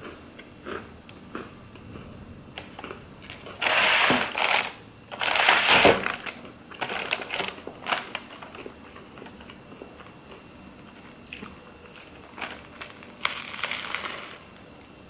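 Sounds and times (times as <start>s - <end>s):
soft crackling chewing: 0.0s - 3.6s, 7.3s - 15.0s
loud crunchy bites: 12.5s - 14.5s.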